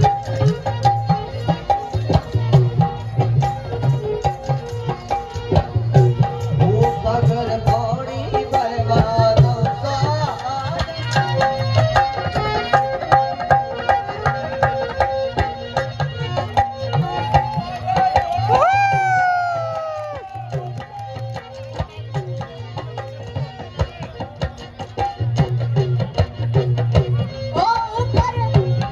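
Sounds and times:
hand drum beat: 16.5s - 28.9s.

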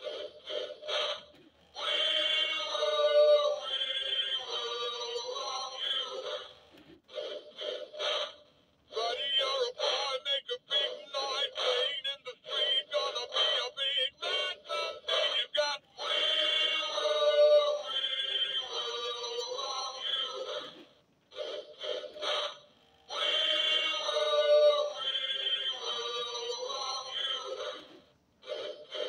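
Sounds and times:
man singing through small speaker: 1.8s - 6.5s, 8.9s - 20.8s, 23.1s - 27.9s.

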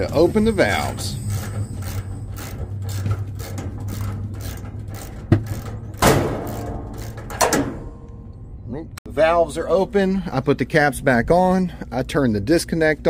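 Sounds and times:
vacuum pump humming: 0.0s - 8.3s
ratchet wrench clicking: 0.4s - 7.6s.

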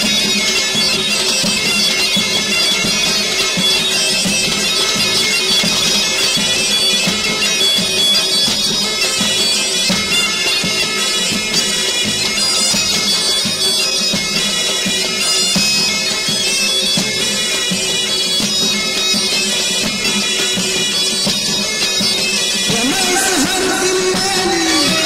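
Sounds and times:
bagpipe playing reedy melody: 0.0s - 25.0s
regular drum beat: 22.7s - 25.0s.

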